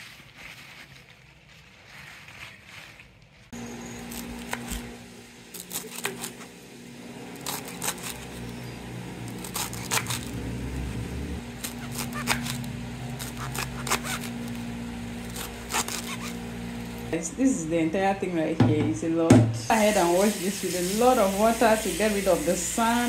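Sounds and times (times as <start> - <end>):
plastic bag crinkling: 0.0 - 3.5.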